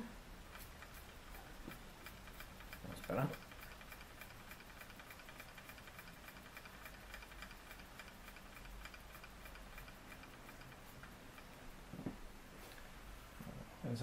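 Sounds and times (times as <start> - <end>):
toy steam engine ticking: 0.5 - 11.6.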